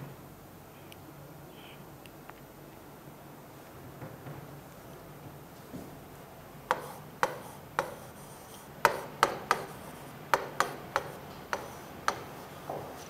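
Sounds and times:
pen tapping on a screen: 0:06.7 - 0:08.1, 0:08.8 - 0:12.8.

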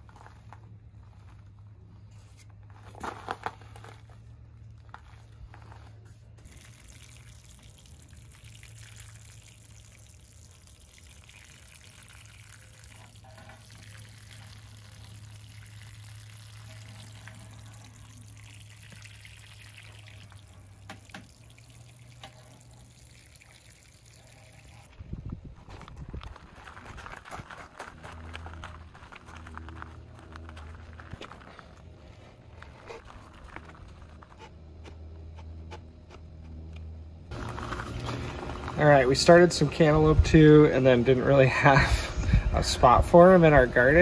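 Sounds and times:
hose spraying water on soil: 0:06.4 - 0:24.9, 0:37.3 - 0:44.0.

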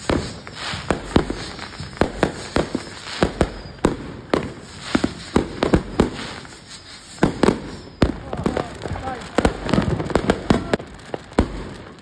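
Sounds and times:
fireworks bangs and pops: 0:00.0 - 0:12.0.

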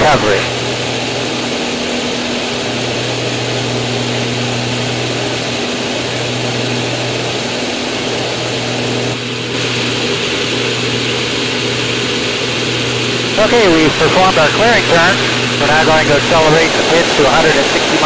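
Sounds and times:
propeller plane engine running: 0:00.0 - 0:18.0
rush of airflow: 0:06.2 - 0:18.0.

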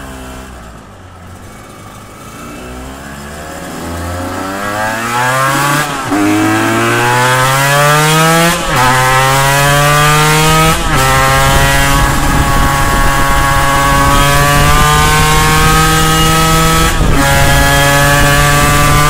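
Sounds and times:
motorcycle engine accelerating: 0:00.0 - 0:19.0.

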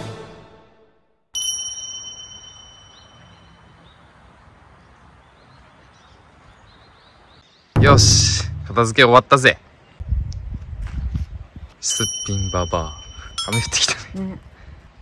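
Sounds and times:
background music: 0:00.0 - 0:01.0
bright metallic ding: 0:07.8 - 0:09.0, 0:11.9 - 0:14.0.

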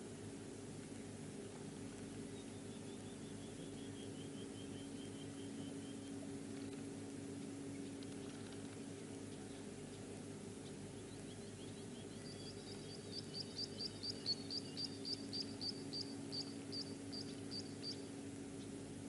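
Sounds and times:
steady low hum: 0:00.0 - 0:19.0
small bird chirping: 0:10.6 - 0:18.7.

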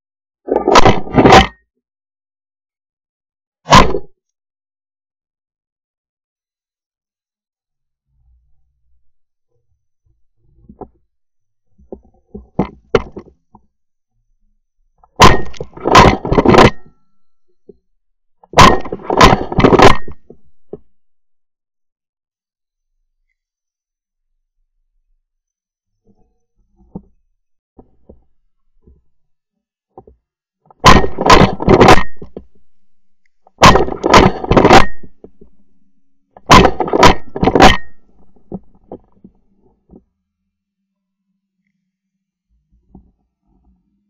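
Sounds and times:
cracks after gunshot: 0:03.7 - 0:04.1
shotgun blasts: 0:30.8 - 0:32.2, 0:36.5 - 0:37.9.

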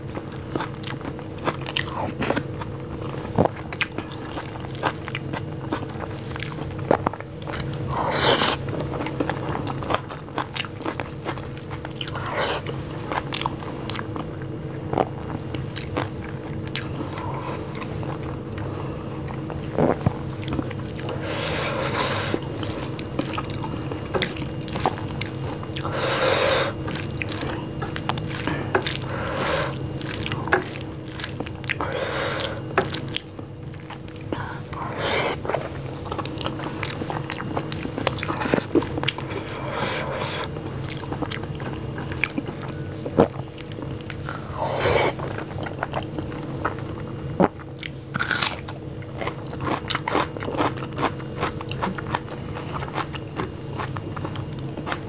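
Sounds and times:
chewing and mouth smacks: 0:00.1 - 0:07.9, 0:08.5 - 0:21.2, 0:22.3 - 0:26.0, 0:26.8 - 0:44.5.

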